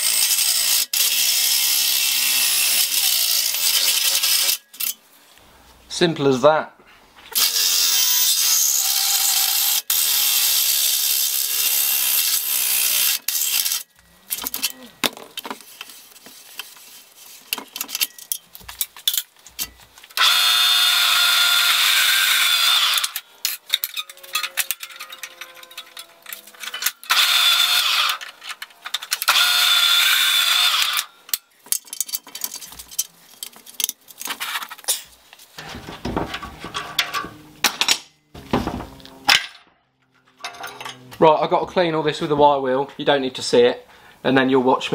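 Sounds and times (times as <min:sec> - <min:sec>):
metal parts clinking: 0:03.5 - 0:05.0, 0:13.0 - 0:15.9, 0:17.5 - 0:20.2, 0:22.8 - 0:29.5, 0:30.8 - 0:41.1
handheld power tool running: 0:07.4 - 0:13.9, 0:20.2 - 0:28.4, 0:29.0 - 0:31.1.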